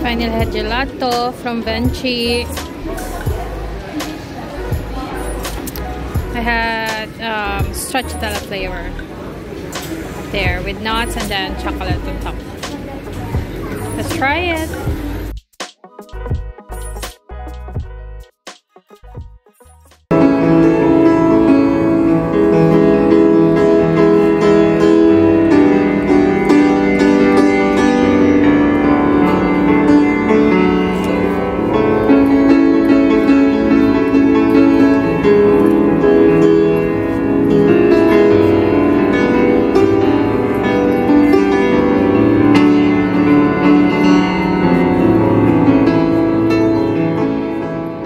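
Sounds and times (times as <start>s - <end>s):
grand piano playing: 20.1s - 48.0s.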